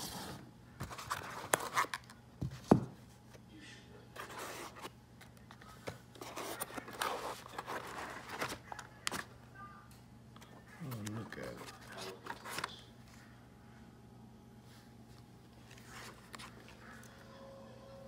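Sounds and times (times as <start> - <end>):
soft rustling and scraping: 14.6 - 17.0.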